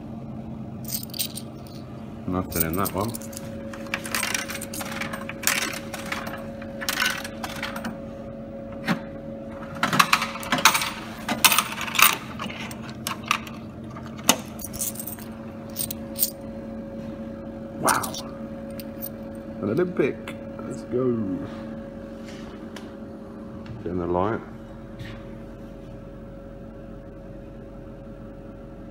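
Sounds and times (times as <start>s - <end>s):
machine electrical hum: 0.0s - 28.9s
coins clinking through vending machine: 0.9s - 1.9s, 2.5s - 7.9s, 9.9s - 13.6s, 14.2s - 16.4s, 17.9s - 19.2s.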